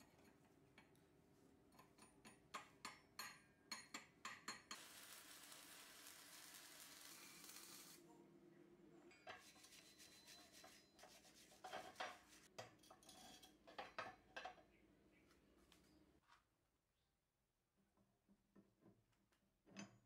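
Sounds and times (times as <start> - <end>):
arc welding crackling: 4.7 - 8.0
chipping tool scraping metal: 4.8 - 8.0.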